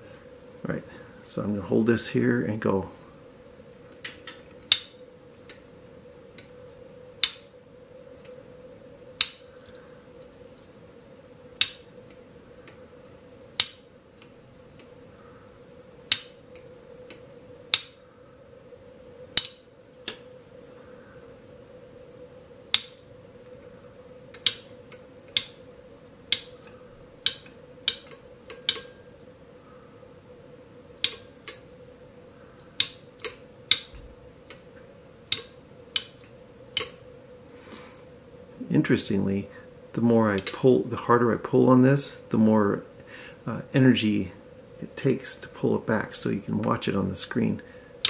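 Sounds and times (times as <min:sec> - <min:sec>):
faint steady hum: 0:00.0 - 0:48.0
solenoid sharp metallic click: 0:31.0 - 0:31.7.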